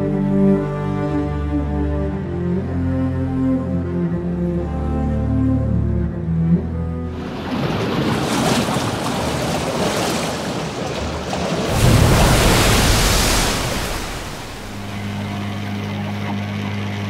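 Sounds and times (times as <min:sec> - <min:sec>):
water rushing and splashing: 0:07.1 - 0:17.0.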